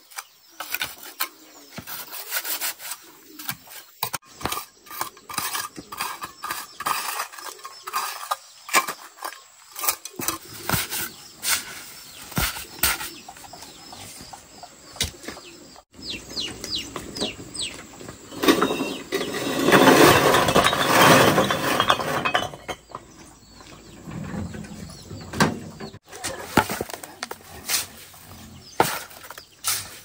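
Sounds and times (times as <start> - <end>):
bird chirping: 0.0 - 19.8, 21.4 - 30.0
bricks clattering onto ground: 18.3 - 23.2, 26.0 - 27.4.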